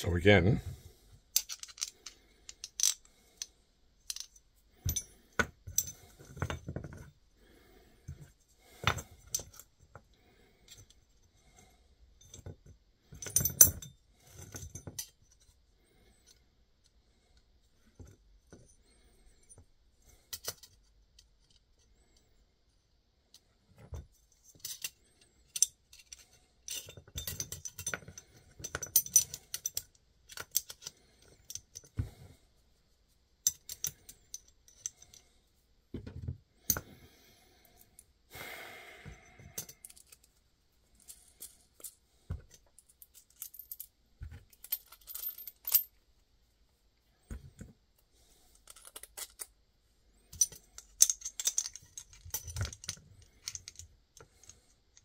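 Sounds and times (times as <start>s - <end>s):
metal pieces clinking on rubber mat: 1.3s - 7.1s, 23.8s - 32.2s, 33.4s - 35.3s, 39.4s - 40.4s, 41.0s - 46.0s, 48.5s - 49.6s, 50.3s - 55.0s.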